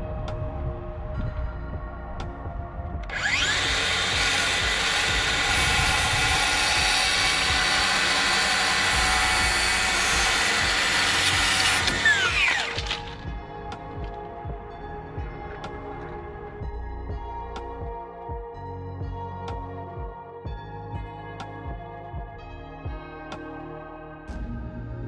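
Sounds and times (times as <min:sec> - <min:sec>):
power saw cutting wood: 0:03.1 - 0:13.3.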